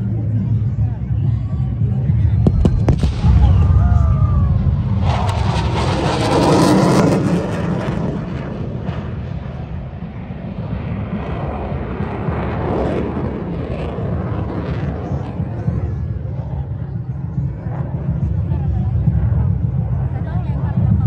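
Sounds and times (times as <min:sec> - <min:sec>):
fighter jet passing overhead: 0:02.4 - 0:18.2.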